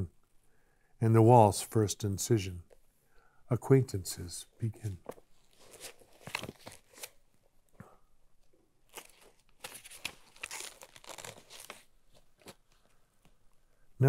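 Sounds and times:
paper pages rustling: 4.8 - 7.3, 8.8 - 13.4.

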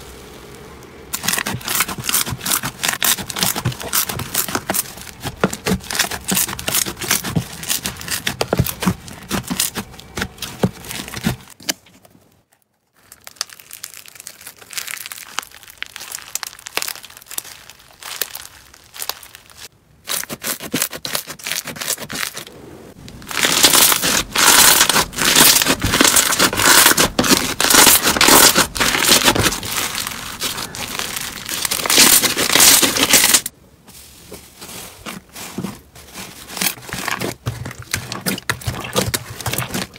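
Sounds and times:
slime crackling and popping: 1.1 - 11.6, 12.9 - 33.5.

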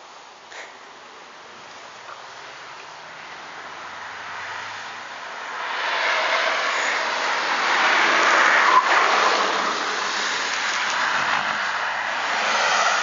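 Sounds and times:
car driving past at speed: 3.9 - 13.0.

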